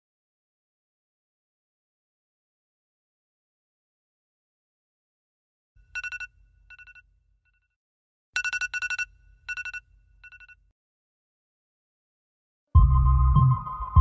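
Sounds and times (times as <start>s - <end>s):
phone alarm trilling: 6.0s - 7.0s.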